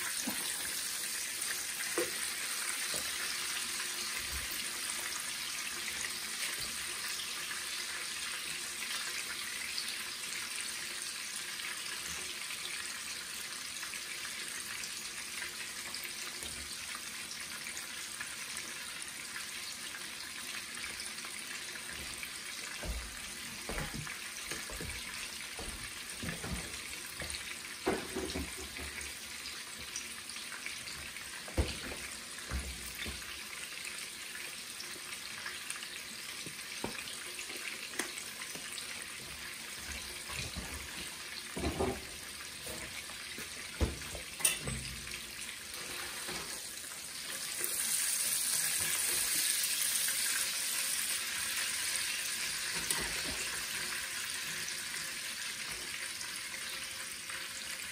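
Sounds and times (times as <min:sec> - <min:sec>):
steaks sizzling in frying pan: 0:00.0 - 0:57.9.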